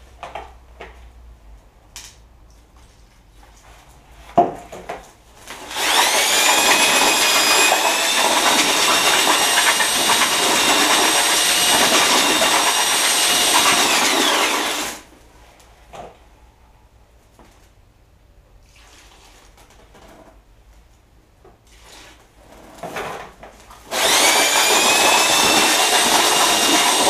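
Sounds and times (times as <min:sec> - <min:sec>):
electric drill mixing: 0:05.6 - 0:15.1, 0:23.9 - 0:27.0.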